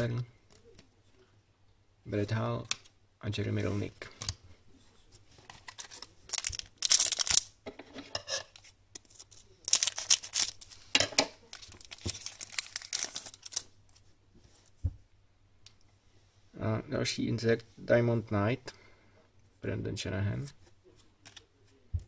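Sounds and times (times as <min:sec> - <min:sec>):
card pack wrapper tearing: 0:05.5 - 0:07.6, 0:09.0 - 0:10.8, 0:11.5 - 0:13.7.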